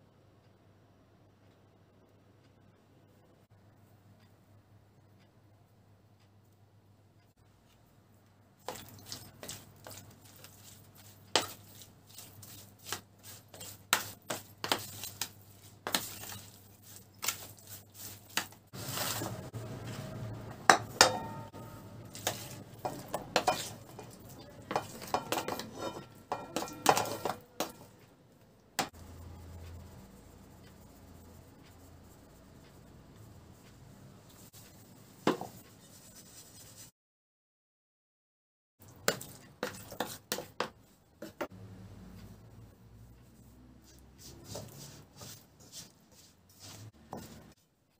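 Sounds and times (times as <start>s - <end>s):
metal spoon scraping plastic tub: 8.6s - 28.0s.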